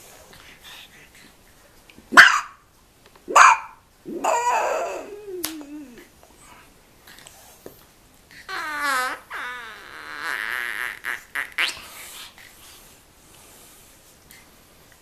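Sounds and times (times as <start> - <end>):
puppy barking: 2.1 - 2.6, 3.3 - 5.2
puppy whining: 4.1 - 6.6.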